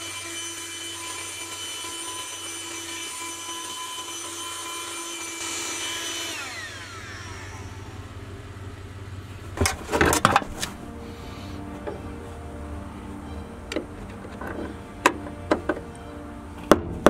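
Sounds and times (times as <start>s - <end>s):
vacuum cleaner running: 0.0s - 9.9s
vacuum motor winding down: 4.4s - 9.2s.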